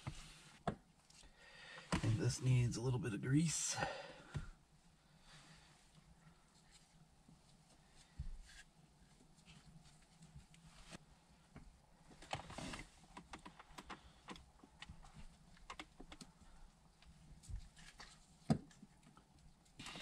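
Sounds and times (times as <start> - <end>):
gloved hands clicking and tapping parts: 13.1 - 16.4.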